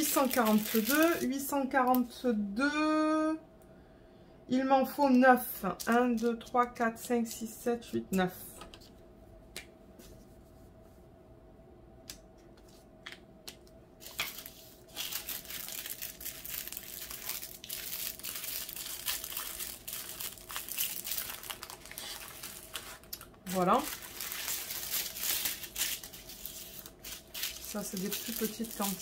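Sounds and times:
plastic bags crinkling: 0:00.0 - 0:02.0, 0:14.0 - 0:29.0.

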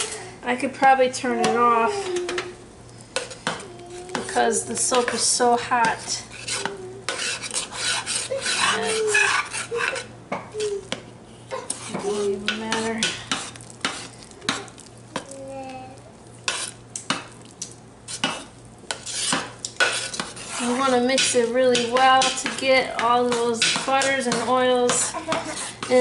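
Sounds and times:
metal spoon scraping pot: 0:03.2 - 0:10.8, 0:11.6 - 0:14.8, 0:16.4 - 0:16.8, 0:18.1 - 0:26.0.

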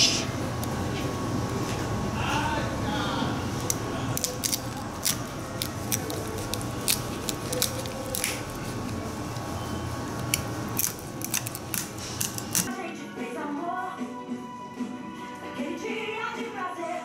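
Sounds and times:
steady low hum: 0:00.0 - 0:12.7.

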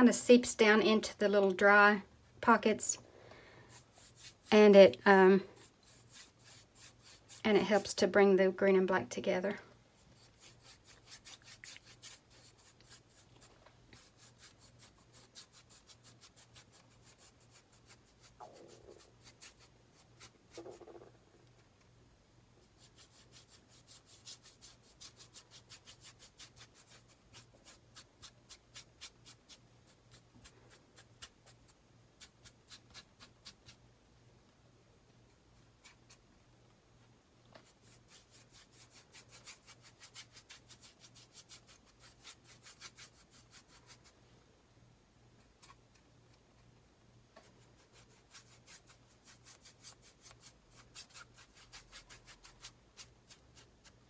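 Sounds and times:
brush scrubbing on canvas: 0:03.7 - 0:04.6, 0:05.5 - 0:07.9, 0:10.0 - 0:20.8, 0:22.6 - 0:33.8, 0:37.6 - 0:44.1, 0:47.5 - 0:54.0.

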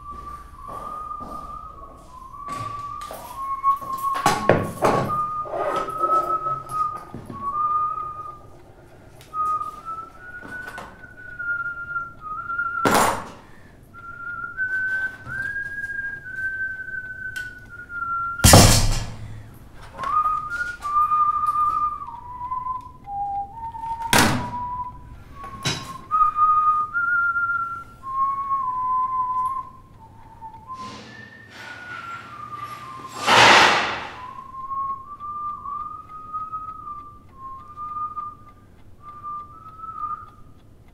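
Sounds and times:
person whistling a tune: 0:00.0 - 0:08.6, 0:09.3 - 0:40.6
sharp thunks: 0:18.4 - 0:19.6, 0:24.1 - 0:24.6.

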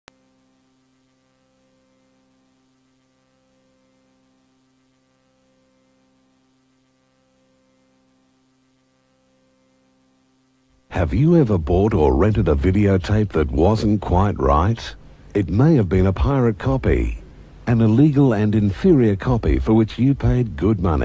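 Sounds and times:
faint electrical hum: 0:00.1 - 0:21.0
tape hiss: 0:00.1 - 0:21.0.

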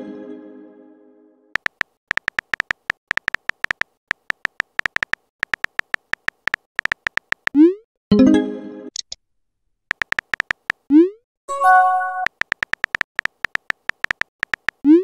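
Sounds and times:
electronic typing ticks: 0:01.6 - 0:07.8, 0:09.9 - 0:10.9, 0:12.1 - 0:15.0.

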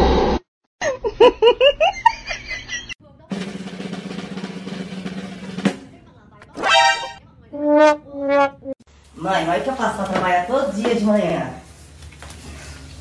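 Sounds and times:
steady drumming: 0:03.3 - 0:05.9
quick bouncing pitched notes: 0:06.4 - 0:08.5.

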